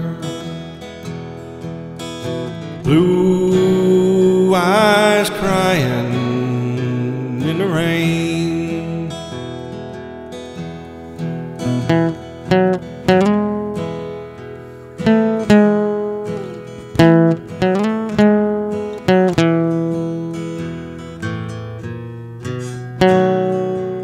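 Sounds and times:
fingerpicked acoustic guitar: 0:00.0 - 0:24.0.

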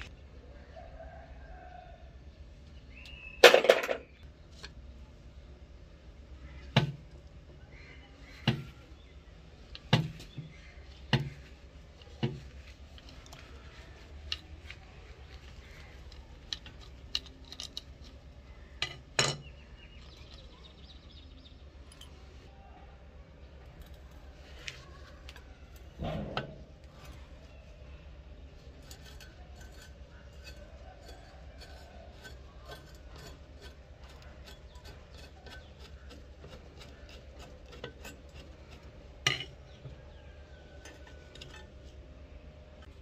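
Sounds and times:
metal clatter: 0:03.4 - 0:04.2, 0:40.8 - 0:42.0.

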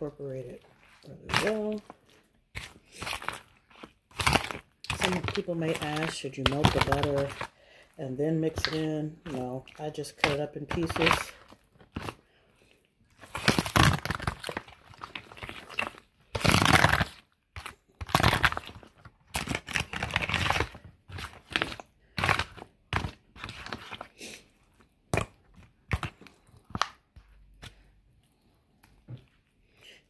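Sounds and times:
spoon stirring thick mixture: 0:00.0 - 0:30.0
foil pan crinkling: 0:00.1 - 0:12.3, 0:13.1 - 0:24.4.

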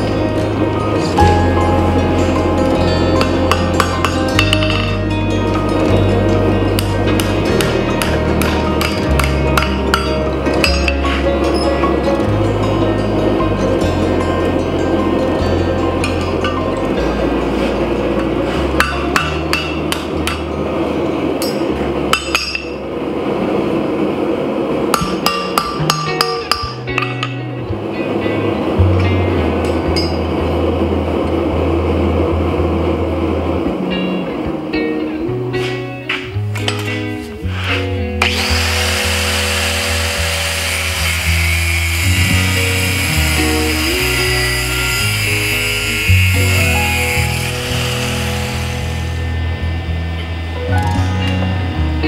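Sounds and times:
background music: 0:00.0 - 0:52.0
hammer striking steel on anvil: 0:07.2 - 0:11.6, 0:18.8 - 0:20.5, 0:21.4 - 0:22.8, 0:24.9 - 0:27.4, 0:30.0 - 0:30.2
angle grinder cutting steel: 0:37.5 - 0:49.5.

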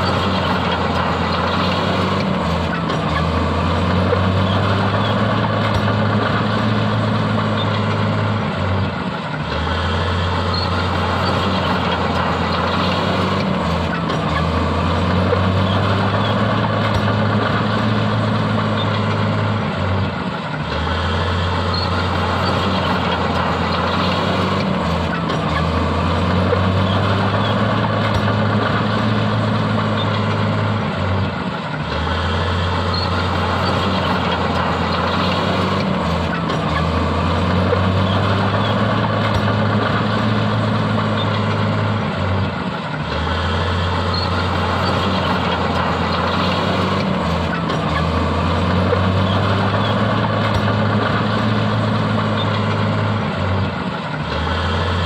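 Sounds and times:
heavy diesel machinery droning: 0:00.0 - 0:55.0.

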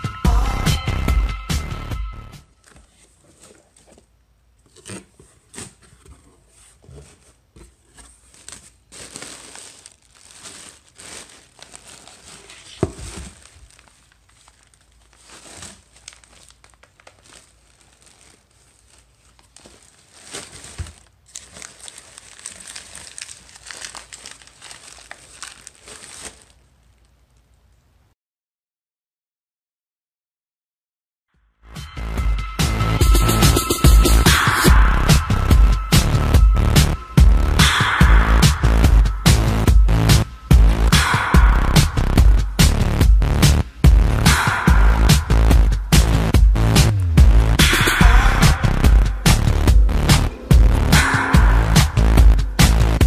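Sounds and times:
plastic and paper crinkling: 0:02.5 - 0:27.7
cardboard flaps handled: 0:11.1 - 0:13.8.

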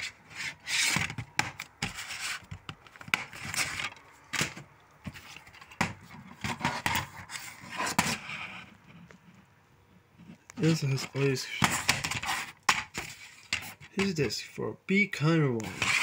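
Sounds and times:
plastic cases clicking and rubbing: 0:00.4 - 0:08.2, 0:15.6 - 0:16.0.

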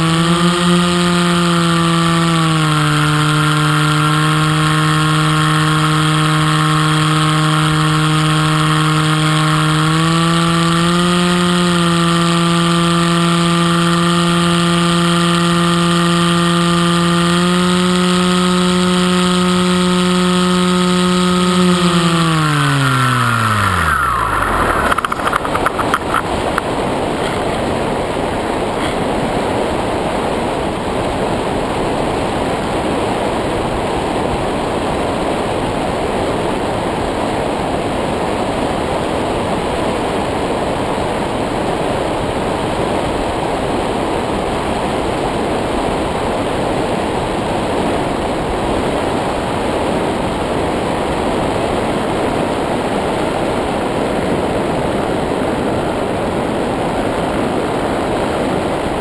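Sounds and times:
motor whine: 0:02.8 - 0:27.6.

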